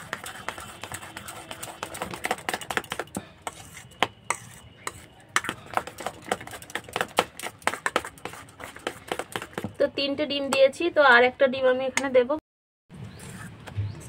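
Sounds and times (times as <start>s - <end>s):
metal spoon scraping bowl: 0.0s - 7.0s.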